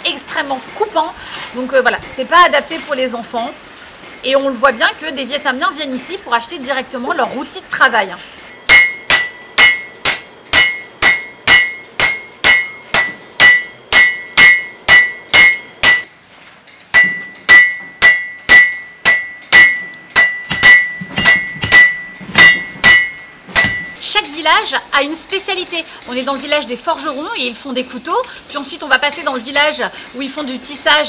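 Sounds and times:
hammer striking metal on anvil: 0:08.5 - 0:16.2, 0:16.9 - 0:24.0.

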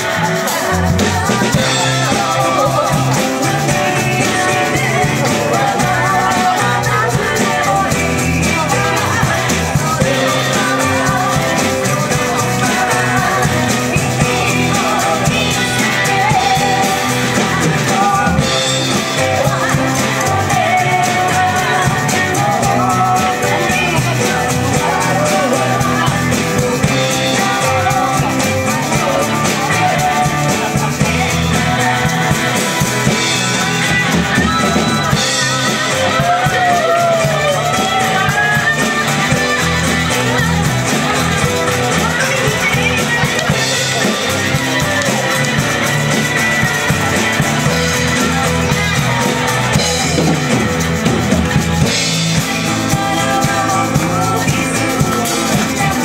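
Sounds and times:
acoustic guitar: 0:00.0 - 0:56.0
drum kit: 0:00.0 - 0:56.0
electric bass: 0:00.0 - 0:56.0
keyboard: 0:00.0 - 0:56.0
people singing together: 0:00.0 - 0:56.0.

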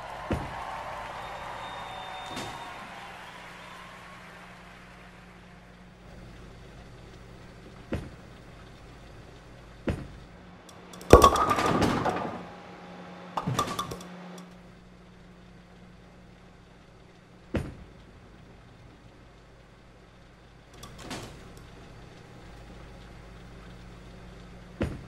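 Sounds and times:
steady low hum: 0:00.0 - 0:25.0
metallic clattering: 0:10.8 - 0:12.5
sharp knocks: 0:13.4 - 0:14.0.

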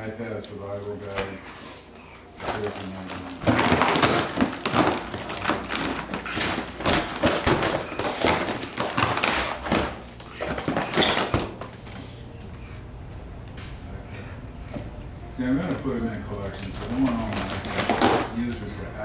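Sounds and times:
foil balloon crinkling: 0:02.3 - 0:12.4, 0:15.4 - 0:19.0.

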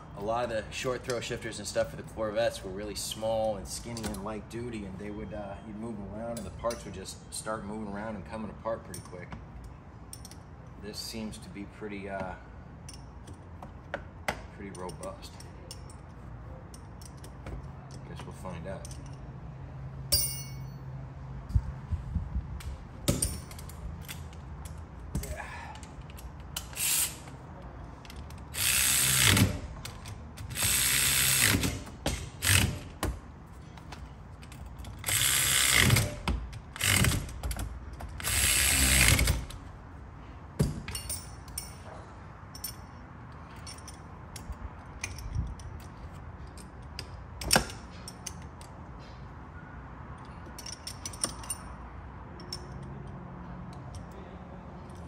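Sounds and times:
cordless ratchet running: 0:28.4 - 0:32.9, 0:34.8 - 0:37.4, 0:38.1 - 0:39.6
light clicks of tools: 0:50.1 - 0:51.7.

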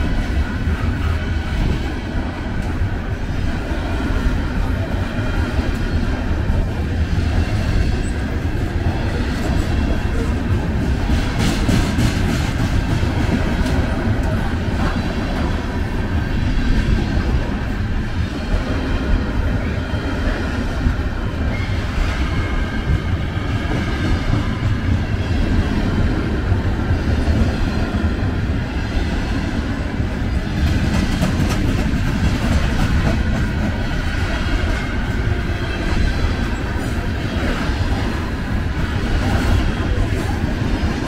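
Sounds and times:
freight train rumbling past: 0:00.0 - 0:41.0.

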